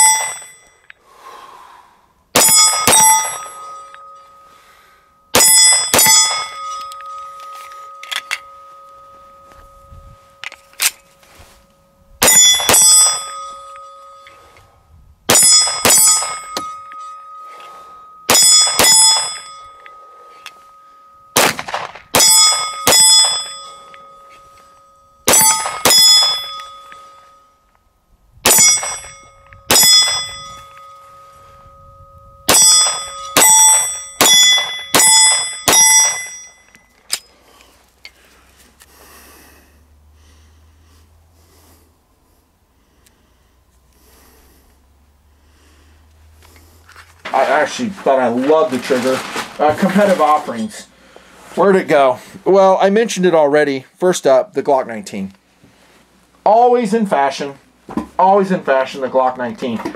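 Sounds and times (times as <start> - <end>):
steel plate ringing: 0.0 - 1.0, 2.3 - 37.5
pistol shots: 21.4 - 23.5, 32.5 - 36.3.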